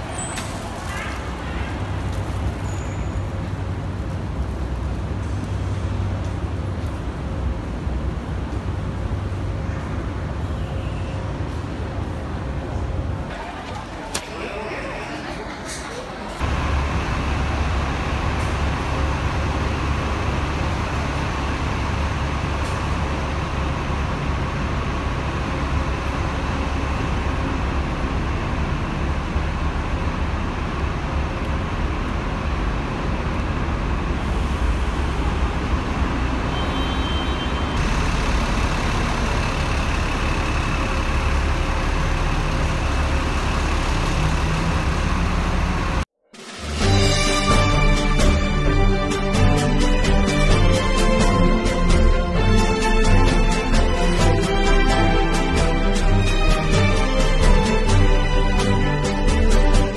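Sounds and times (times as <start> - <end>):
bus diesel engines idling: 0.0 - 59.9.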